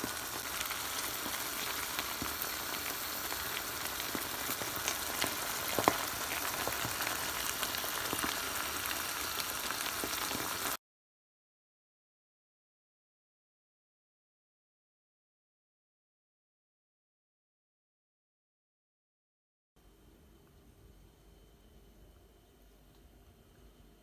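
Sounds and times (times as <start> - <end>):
sauce sizzling in a pan: 0.0 - 10.8.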